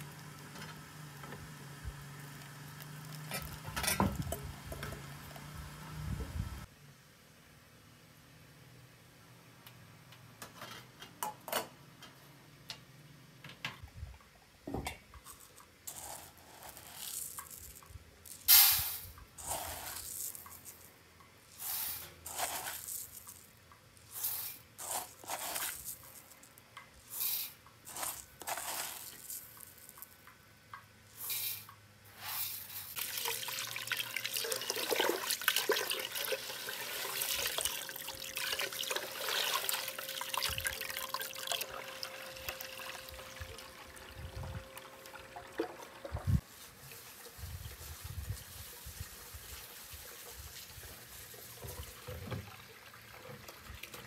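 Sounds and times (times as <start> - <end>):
water running from hose: 1.9 - 3.7, 15.3 - 20.9, 21.6 - 26.5, 27.1 - 30.0, 32.2 - 54.0
rice pouring into metal pot: 15.3 - 20.9, 21.5 - 30.2, 32.2 - 44.1
hand swishing rice in water: 18.5 - 20.9, 21.6 - 23.4, 24.1 - 26.2, 27.1 - 29.7.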